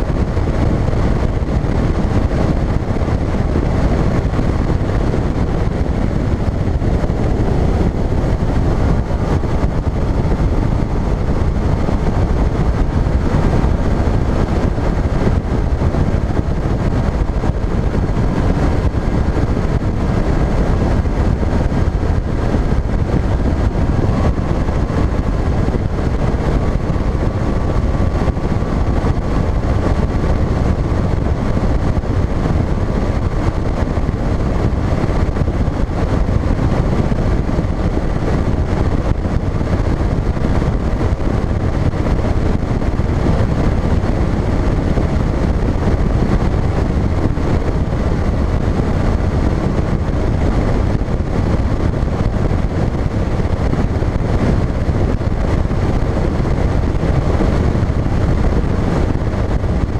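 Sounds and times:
outboard motor running: 0.0 - 59.9
wind rushing over microphone: 0.0 - 59.9.

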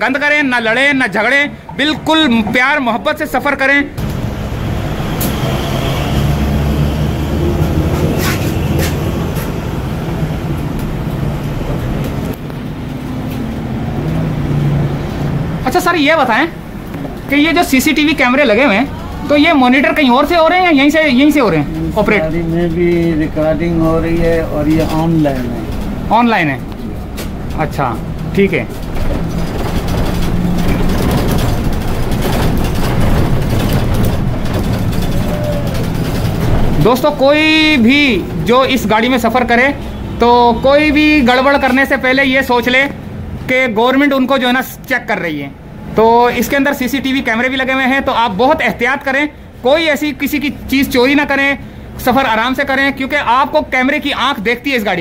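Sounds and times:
bus road rumble and hum: 0.0 - 55.0
cabin rattling: 15.4 - 39.7.

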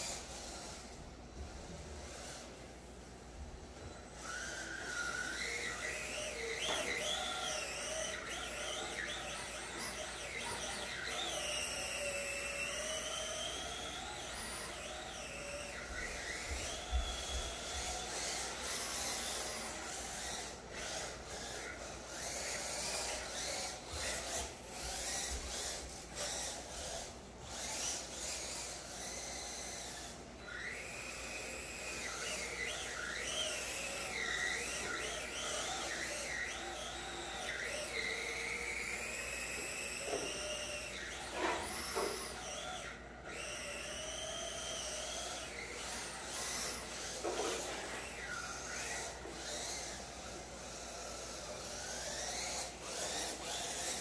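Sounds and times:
electric motor whine: 0.0 - 54.0.

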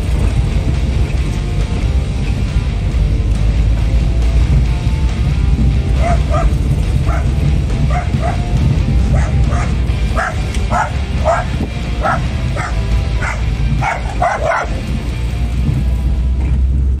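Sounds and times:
car engine and tyres rumbling: 0.0 - 17.0
dog barking: 5.9 - 14.9.

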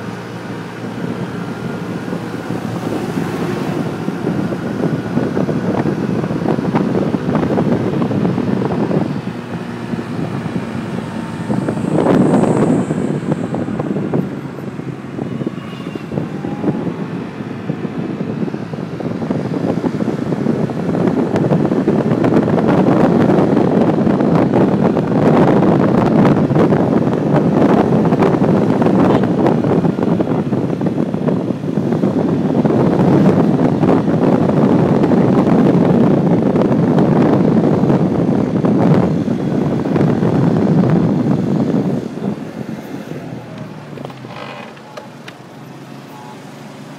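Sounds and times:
wind rush on microphone: 0.0 - 46.9
small scooter engine running: 43.4 - 46.9.

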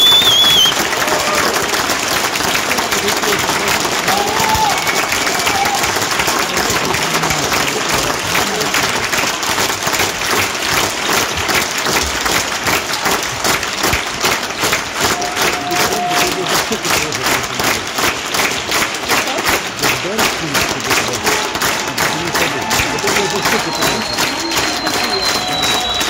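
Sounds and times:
audience applauding: 0.0 - 26.0
rhythmic clapping: 0.0 - 26.0.

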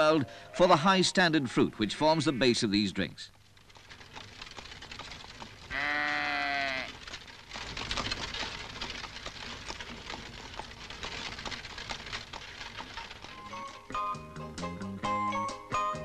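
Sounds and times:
crackly background noise: 0.0 - 15.8
animal bleating: 5.7 - 7.0.

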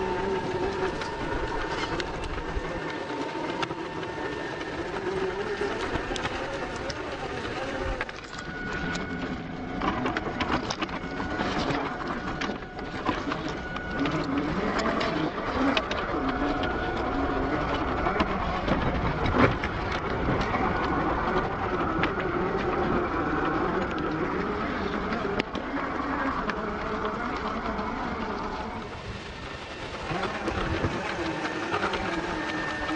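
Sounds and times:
electric motor whining: 0.0 - 32.9
stones clicking under tyres: 0.0 - 32.9.

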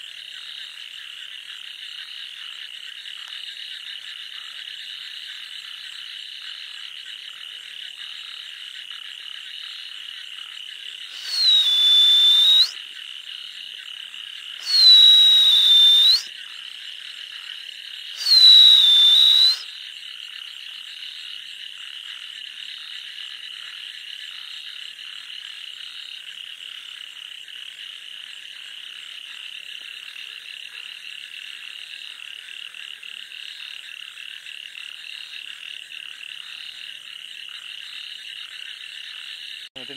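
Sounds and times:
frogs calling: 0.0 - 39.9
whistle-like calls dropping in pitch: 11.1 - 12.8, 14.6 - 16.3, 18.2 - 19.7.

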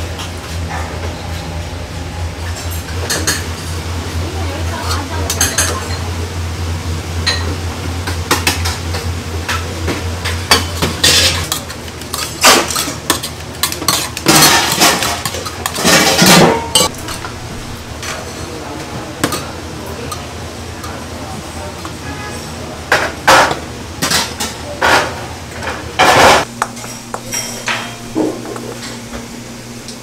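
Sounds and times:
steady low hum: 0.0 - 30.0
steel bowls and utensils clinking: 2.4 - 6.2, 7.2 - 29.0.

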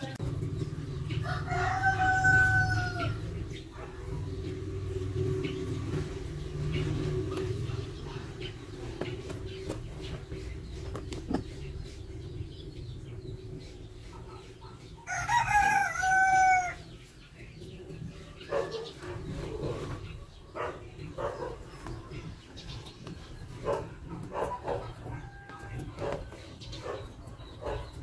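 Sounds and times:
rooster crowing: 1.2 - 3.3, 15.1 - 16.9.

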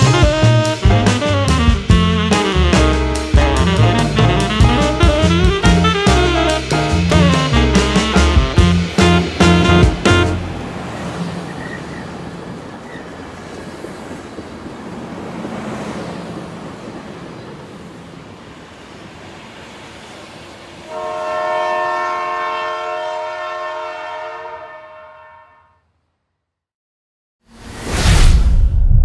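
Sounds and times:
multi-tone train horn blast: 0.0 - 12.0, 20.8 - 26.0
train rumbling along rails: 0.0 - 24.0.

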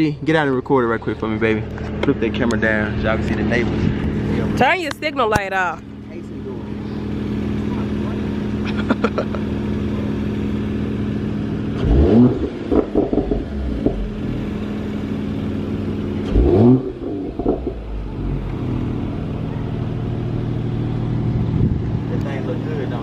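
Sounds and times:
car engine idling and revving: 0.0 - 23.0
exhaust crackles and pops: 11.7 - 14.9, 16.2 - 19.9.

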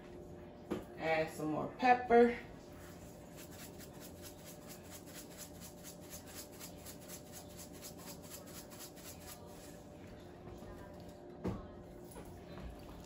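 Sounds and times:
steady low hum: 0.0 - 13.0
kitchen utensil scratching: 2.8 - 9.7.

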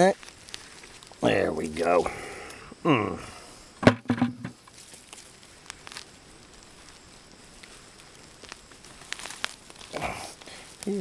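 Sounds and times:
small crackles: 0.0 - 3.8, 4.5 - 11.0
hand digging through soil: 4.7 - 11.0.

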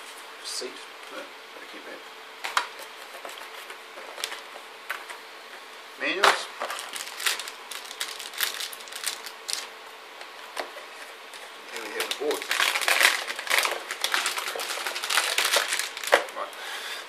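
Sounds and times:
paper rustling and tapping: 12.0 - 16.4.

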